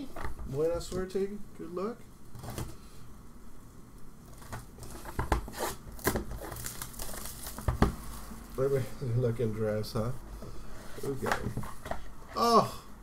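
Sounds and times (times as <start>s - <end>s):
plastic wrapping crinkling: 4.3s - 8.8s.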